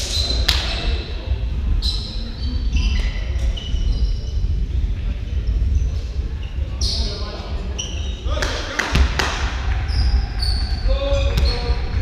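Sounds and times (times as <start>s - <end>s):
low hall rumble: 0.0s - 12.0s
sneakers squeaking on floor: 1.8s - 4.6s, 5.4s - 9.2s, 9.9s - 11.8s
volleyball bouncing on floor: 8.4s - 9.5s, 11.3s - 11.7s.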